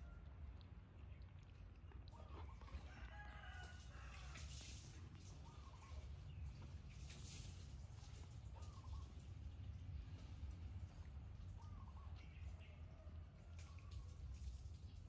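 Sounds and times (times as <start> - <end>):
rooster crowing: 2.8 - 4.6.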